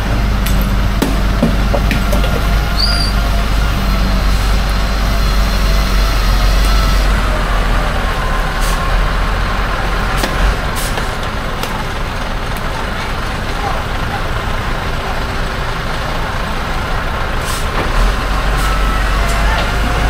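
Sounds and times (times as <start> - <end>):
heavy vehicle engine rumbling: 0.0 - 20.0.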